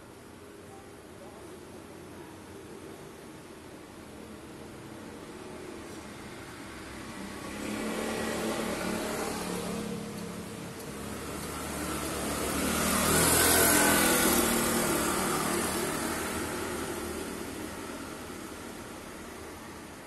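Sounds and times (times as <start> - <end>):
vehicles passing by: 1.2 - 20.0.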